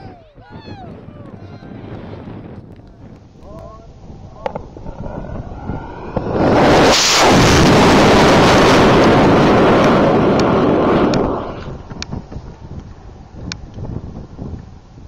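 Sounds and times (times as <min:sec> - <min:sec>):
rocket motor roaring: 0:03.0 - 0:11.9.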